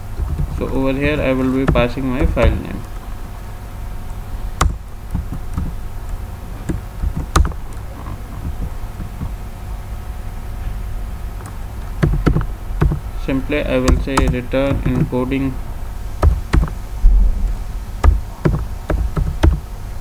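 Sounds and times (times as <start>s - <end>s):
steady low hum: 0.0s - 20.0s
computer keyboard keystrokes: 6.7s - 9.3s, 11.4s - 13.0s, 13.8s - 15.2s, 16.2s - 16.8s, 18.0s - 19.6s.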